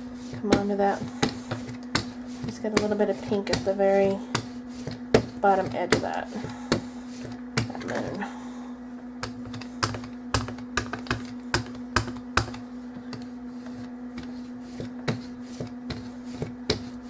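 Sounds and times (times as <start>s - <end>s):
ink roller rolling on paper: 0.0s - 8.3s, 9.2s - 17.0s
steady low hum: 0.0s - 17.0s.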